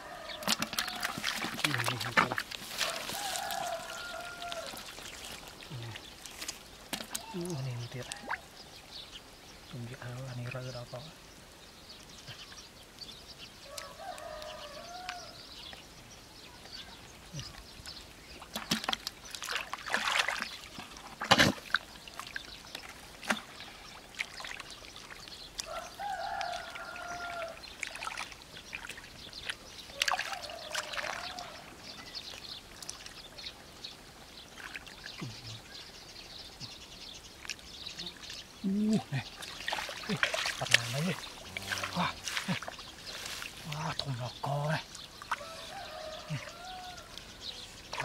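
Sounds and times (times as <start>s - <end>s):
water sloshing and dribbling: 0.0s - 8.6s, 16.6s - 35.6s, 37.3s - 48.0s
hands splashing in muddy water: 0.3s - 8.4s, 18.4s - 31.7s, 38.8s - 44.0s.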